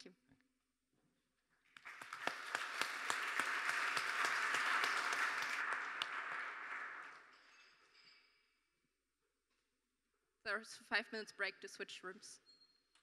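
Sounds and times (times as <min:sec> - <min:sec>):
audience applauding: 0:01.8 - 0:07.6.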